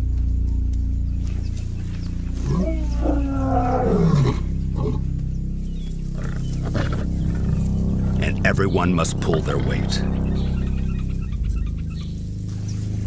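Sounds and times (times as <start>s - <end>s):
lion grunting call: 2.3s - 5.2s, 6.1s - 8.2s
lion roaring: 2.3s - 5.2s, 6.0s - 8.4s.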